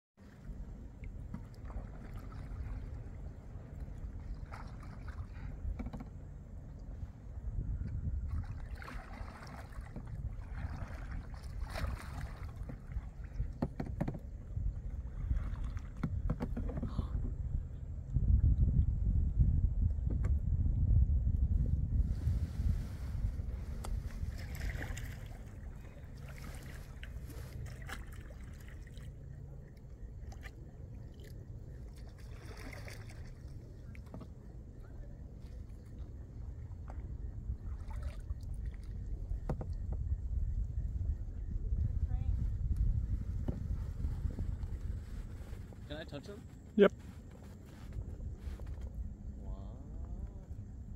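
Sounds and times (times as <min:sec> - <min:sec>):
paddles splashing in water: 0:00.2 - 0:06.2, 0:08.2 - 0:17.2, 0:23.1 - 0:39.8
wind on microphone: 0:01.6 - 0:28.4, 0:31.5 - 0:50.9.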